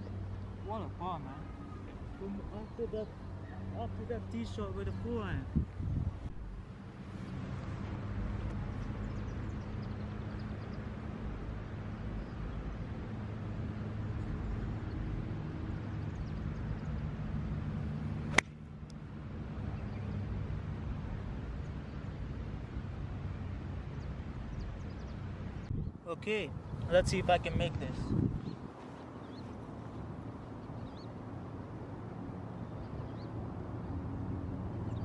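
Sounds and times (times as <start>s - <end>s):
golf club striking ball: 18.3s - 18.6s.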